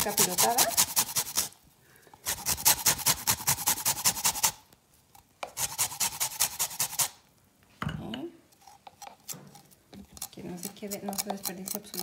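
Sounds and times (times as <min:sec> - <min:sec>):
peel rasping on grater: 0:00.0 - 0:01.6, 0:02.2 - 0:04.6, 0:05.4 - 0:07.2, 0:10.2 - 0:12.0.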